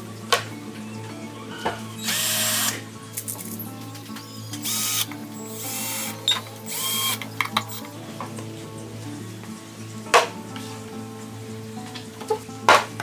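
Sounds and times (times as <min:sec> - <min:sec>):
power drill motor whining: 0:02.0 - 0:02.8, 0:04.5 - 0:07.8.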